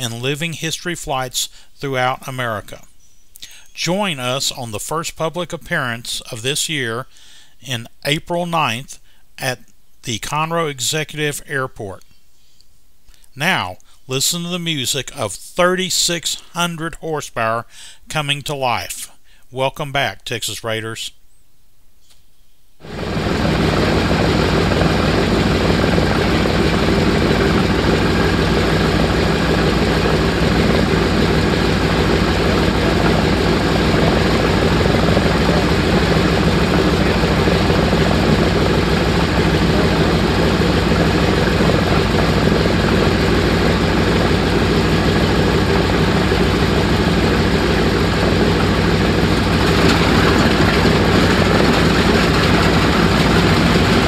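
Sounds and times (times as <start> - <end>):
radial engines droning: 22.8 - 54.0.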